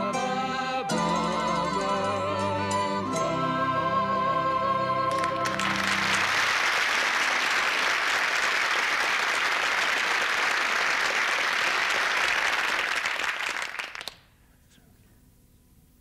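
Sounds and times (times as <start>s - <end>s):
folk singing with acoustic guitars: 0.0s - 5.8s
audience applauding: 5.1s - 14.3s.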